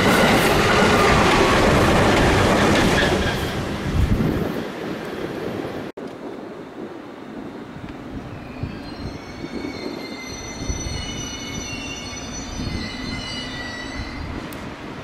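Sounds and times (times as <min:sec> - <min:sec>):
train rumble: 0:00.0 - 0:15.0
train wheels squealing: 0:08.2 - 0:14.6.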